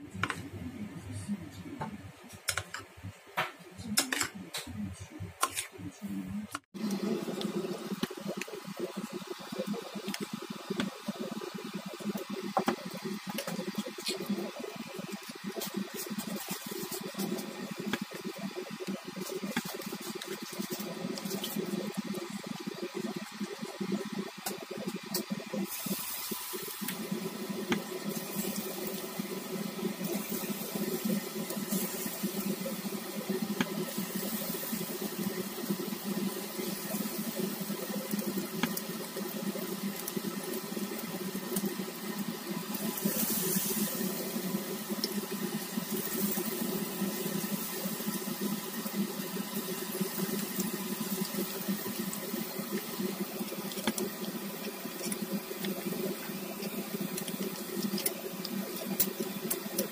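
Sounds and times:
chicken deep-frying in oil: 6.5 - 59.9
small oil crackles: 23.0 - 59.9.

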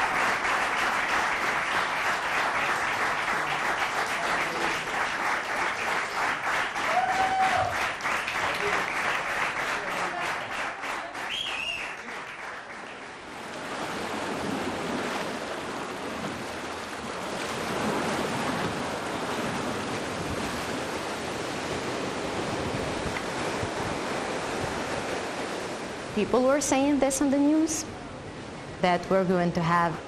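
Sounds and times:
audience applause: 0.0 - 13.3
sea waves breaking on beach: 0.0 - 28.7
high whistle: 11.3 - 12.0.

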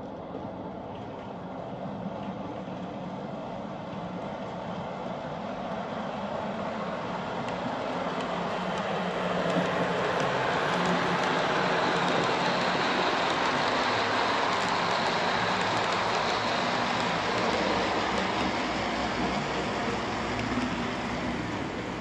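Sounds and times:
wheels clicking on rails: 6.0 - 22.0
model train motor hum: 7.4 - 22.0.

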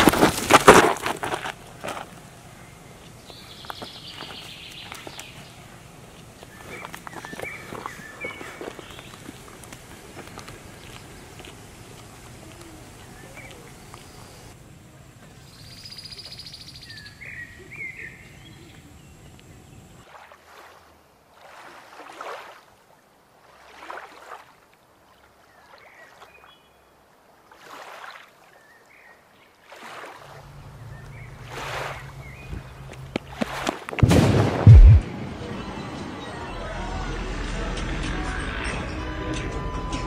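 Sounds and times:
bird chirps: 6.5 - 9.2
low rumble: 34.0 - 38.1.

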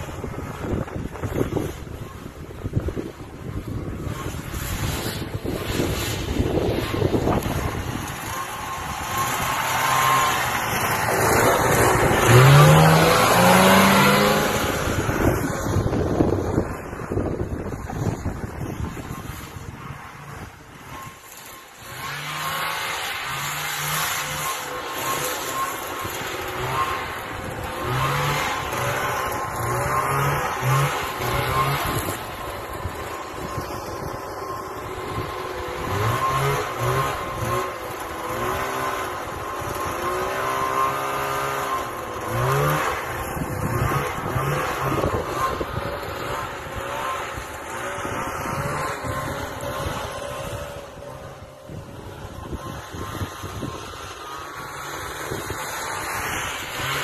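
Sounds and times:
snowmobile engine revving: 0.0 - 57.0.

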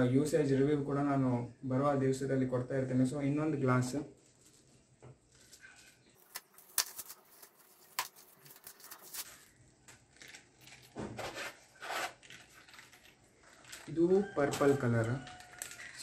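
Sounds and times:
plastic wrap crinkling: 4.1 - 16.0.

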